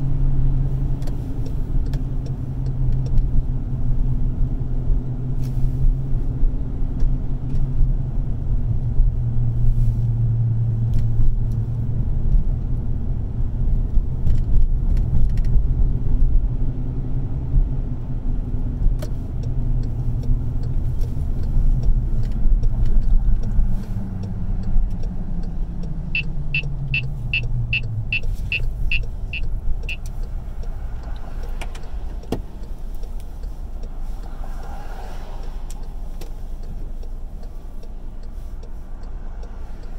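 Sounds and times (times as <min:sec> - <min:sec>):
car engine and tyre rumble: 0:00.0 - 0:39.9
sharp ticks: 0:24.2 - 0:39.9.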